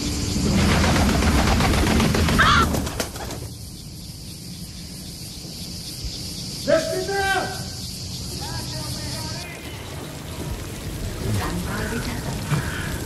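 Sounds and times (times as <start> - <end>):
raven wings flapping: 0.4 - 3.6
raven calling: 2.2 - 3.0.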